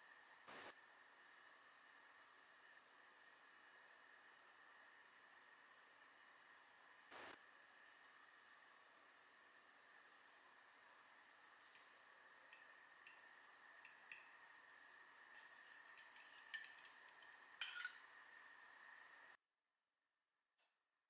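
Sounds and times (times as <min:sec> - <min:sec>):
faint steady hiss: 0:00.0 - 0:19.4
fork scraping bowl: 0:15.4 - 0:18.0
fork clinking against bowl: 0:15.7 - 0:18.0.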